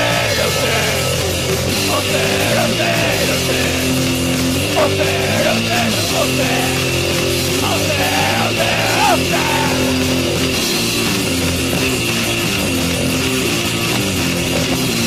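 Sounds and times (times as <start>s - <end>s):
shouted vocals: 0.0s - 10.6s
bass: 0.0s - 15.0s
distorted electric guitars: 0.0s - 15.0s
drums: 0.0s - 15.0s.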